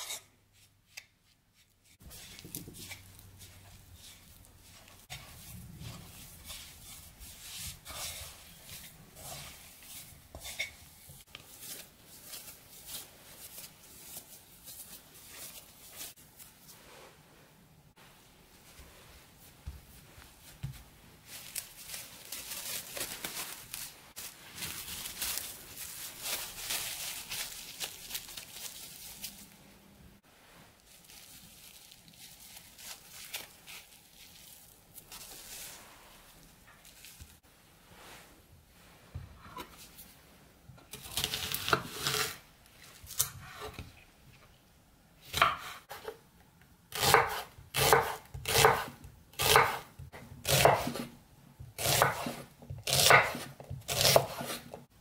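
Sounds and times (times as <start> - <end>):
hands kneading crumbly pastry: 0.6 - 43.2
fingers brushing bowl: 2.0 - 11.8
cling film crinkling and rustling: 20.7 - 29.6, 30.8 - 37.4.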